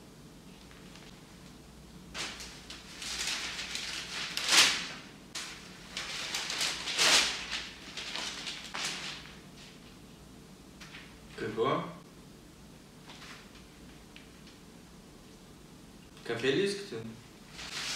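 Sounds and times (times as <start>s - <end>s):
newspaper pages rustling: 2.1s - 10.0s, 13.1s - 14.5s, 17.5s - 17.9s.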